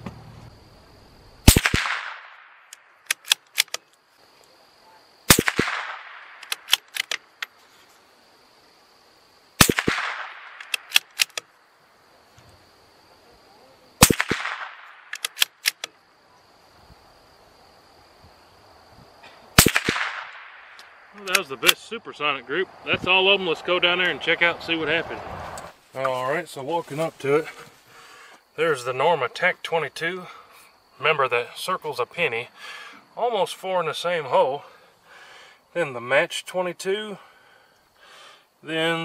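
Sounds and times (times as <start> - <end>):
rifle shots with echo: 1.4 - 3.8, 5.3 - 7.0, 9.6 - 11.4, 14.0 - 15.8, 19.6 - 20.8
rifle bolt clicking: 2.7 - 3.8, 6.4 - 7.2, 9.8 - 11.5, 15.1 - 15.9.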